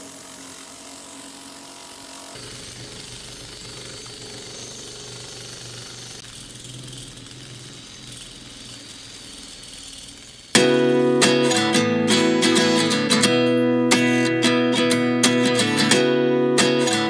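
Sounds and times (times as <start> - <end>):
cordless drill running: 0.0 - 14.4.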